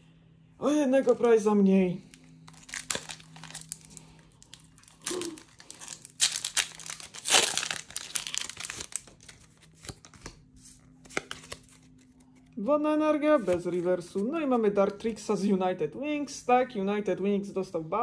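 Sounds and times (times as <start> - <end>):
foil wrapper tearing and crinkling: 2.4 - 10.3.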